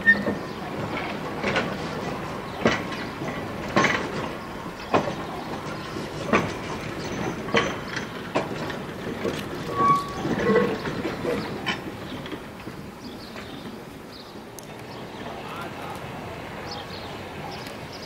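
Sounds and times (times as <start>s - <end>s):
wheel squeal: 0.0s - 0.5s, 9.6s - 11.6s
train running rumble: 0.0s - 18.0s
wheels clicking over rail joints: 0.0s - 18.0s.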